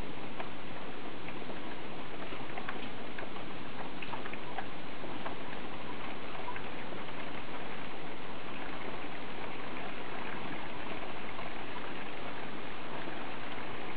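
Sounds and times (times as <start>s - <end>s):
raindrop ticks: 0.0s - 13.9s
steady rain hiss: 0.0s - 13.9s.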